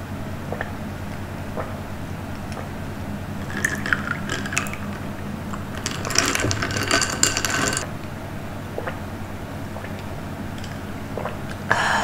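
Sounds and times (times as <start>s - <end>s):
food packaging crinkling: 3.4s - 7.8s.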